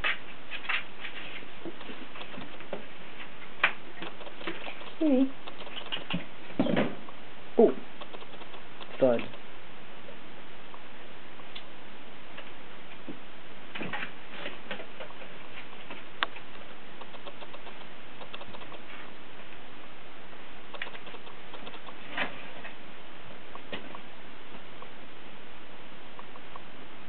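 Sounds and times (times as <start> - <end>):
kitten claws scratching cardboard: 0.6 - 2.9, 4.0 - 6.2, 16.3 - 18.9
sharp click: 1.8 - 2.8, 4.0 - 6.2, 8.0 - 9.4, 16.2 - 18.8, 20.7 - 22.0.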